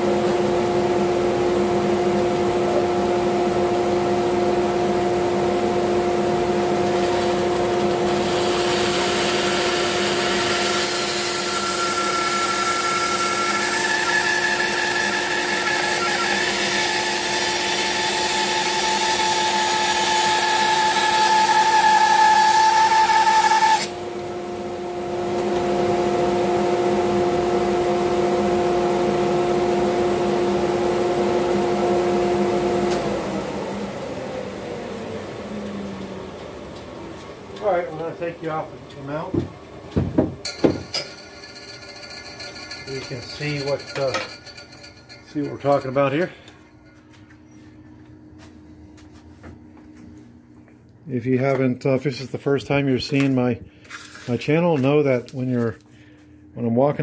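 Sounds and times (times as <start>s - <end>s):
bandsaw running: 4.6s - 24.0s, 40.4s - 46.4s
blade cutting wood: 8.1s - 23.9s.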